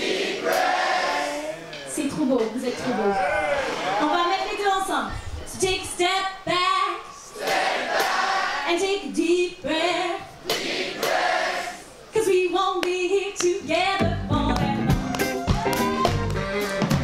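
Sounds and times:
crowd singing in chorus: 0.0 - 1.6, 7.3 - 8.7, 10.4 - 12.0
drums and bass: 13.7 - 17.0.

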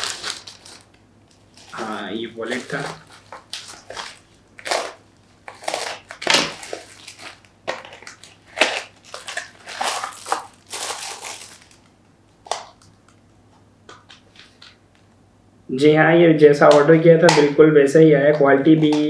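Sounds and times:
plastic packaging crinkling: 0.0 - 13.2.

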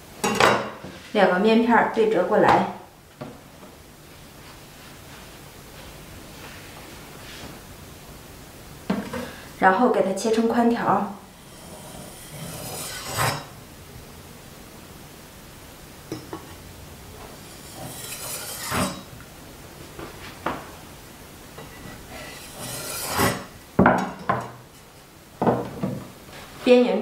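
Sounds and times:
cleaver scraping and knocking board: 17.7 - 19.0, 21.8 - 23.5.

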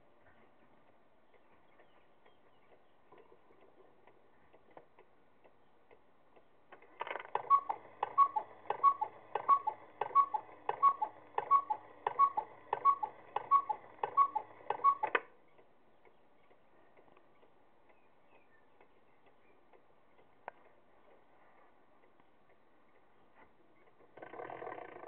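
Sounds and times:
cuckoo clock calls: 7.2 - 15.3
clock ticking: 7.4 - 16.6.

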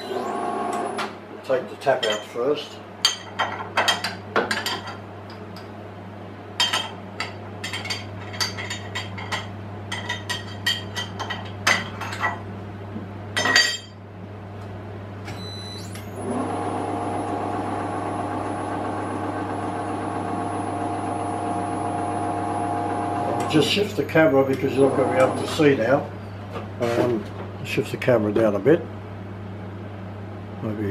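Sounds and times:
milling machine motor humming: 0.0 - 1.1, 16.1 - 26.0.

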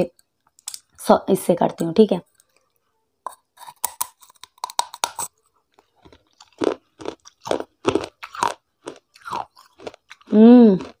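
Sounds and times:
crunchy chewing: 2.3 - 11.0
crunching bites: 3.6 - 11.0.

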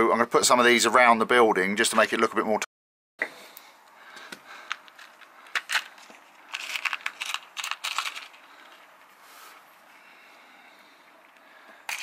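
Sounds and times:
stones rattling in plastic pot: 4.7 - 8.8.

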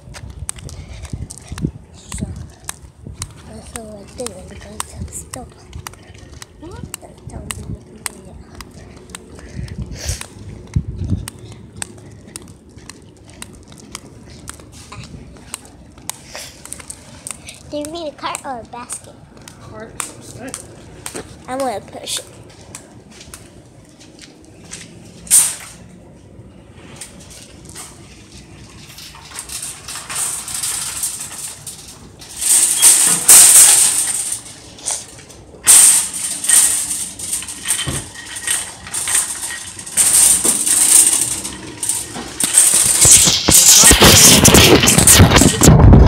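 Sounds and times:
shopping cart rattling: 27.2 - 46.0.

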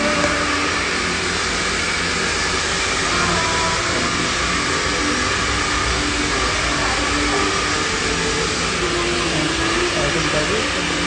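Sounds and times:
blower rushing: 0.0 - 11.0.

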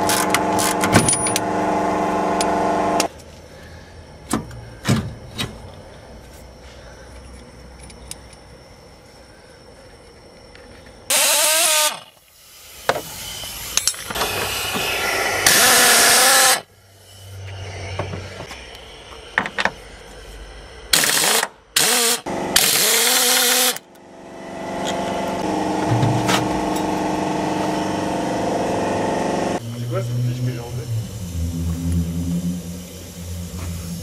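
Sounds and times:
power tool running: 0.0 - 3.1, 11.1 - 12.2, 12.9 - 16.7, 20.9 - 34.0
steady motor hum: 0.0 - 3.9, 21.6 - 34.0.

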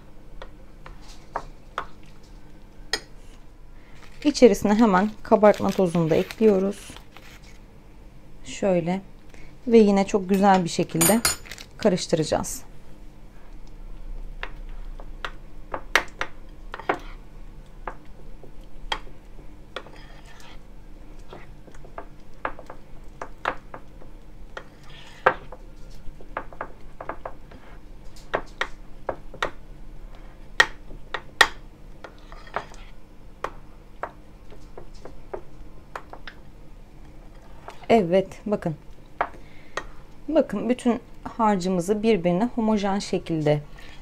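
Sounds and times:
utensil scraping and clinking bowl: 32.0 - 33.0.

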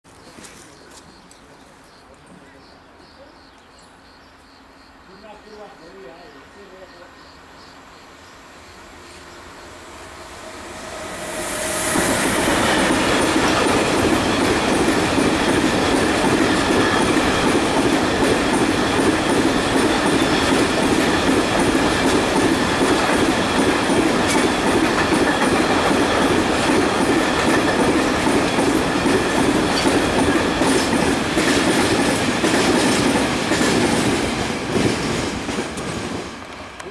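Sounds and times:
electric locomotive passing: 1.1 - 36.9
train wheels clickety-clack on rails: 11.3 - 36.9.

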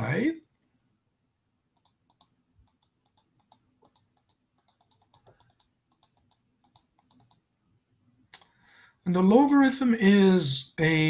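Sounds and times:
faint computer clicking: 1.7 - 7.5.

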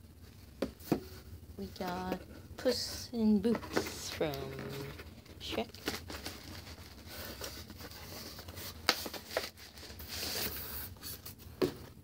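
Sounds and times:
cardboard scraping and rustling: 3.4 - 12.0.

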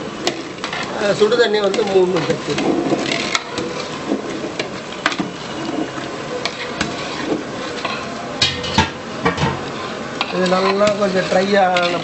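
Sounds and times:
hissing and bubbling: 0.0 - 8.4
ladle scraping metal pot: 0.2 - 12.0.

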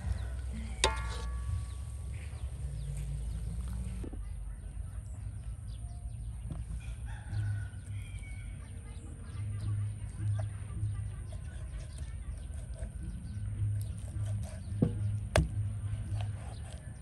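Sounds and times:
rooster crowing: 6.8 - 8.6.

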